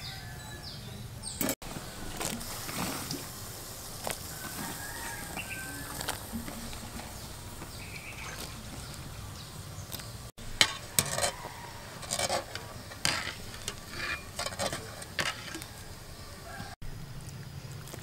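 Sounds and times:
water splashing: 0:01.4 - 0:10.6
water boiling in a pot: 0:01.6 - 0:16.8
strainer clinking and scraping pot: 0:10.5 - 0:16.0.

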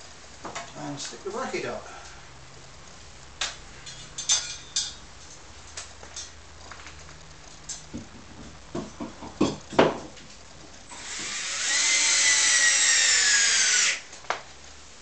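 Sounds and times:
cordless drill driving screw: 0:10.9 - 0:14.0.

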